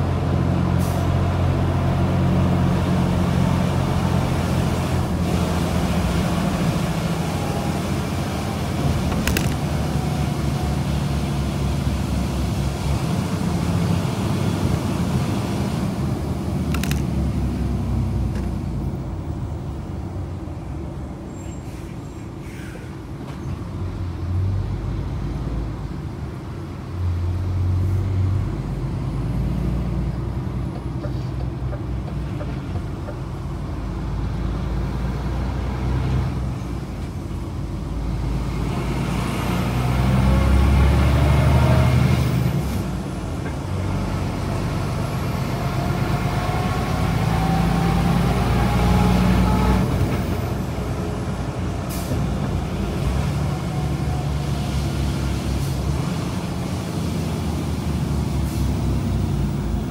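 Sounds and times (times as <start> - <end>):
diesel truck engine drone: 0.0 - 59.9
rising engine whine: 44.0 - 51.2.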